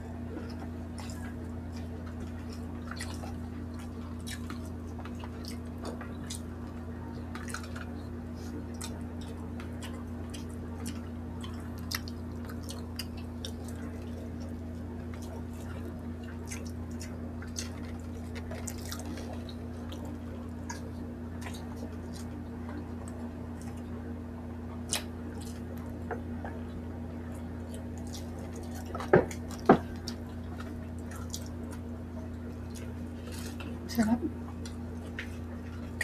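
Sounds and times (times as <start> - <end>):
steady low hum: 0.0 - 36.0
wet chewing and lip smacks: 0.3 - 24.0, 24.7 - 33.8.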